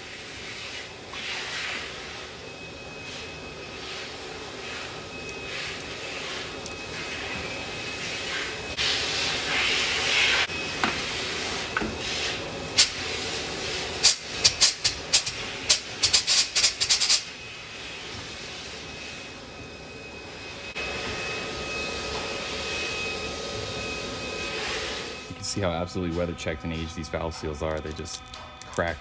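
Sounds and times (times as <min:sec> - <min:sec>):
steady machine hum: 0:00.0 - 0:29.0
pneumatic air hiss: 0:11.4 - 0:17.3
metal parts clicking and clinking: 0:27.4 - 0:29.0.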